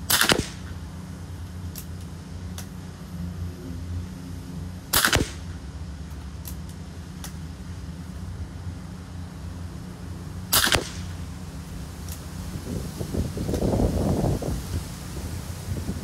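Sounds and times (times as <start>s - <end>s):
air rifle shot: 0.0s - 0.8s, 4.9s - 5.6s, 10.5s - 11.2s
low steady hum: 0.0s - 16.0s.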